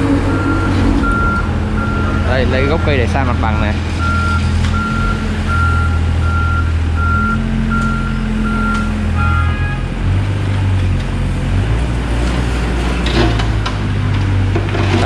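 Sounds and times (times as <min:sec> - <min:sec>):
diesel engine running under load: 0:00.0 - 0:15.0
warning alarm beeping: 0:00.3 - 0:09.8.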